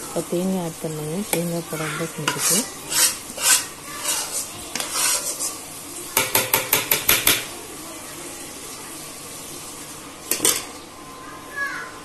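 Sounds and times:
utensil scraping: 1.1s - 6.7s.

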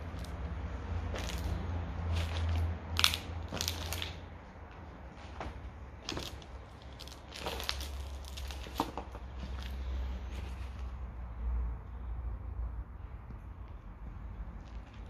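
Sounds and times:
footsteps crunching on litter: 1.0s - 4.2s, 5.5s - 10.8s.

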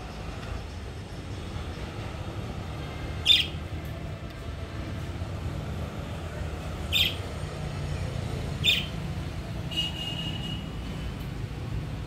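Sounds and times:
budgerigar chirps: 6.9s - 7.2s, 8.6s - 8.9s.

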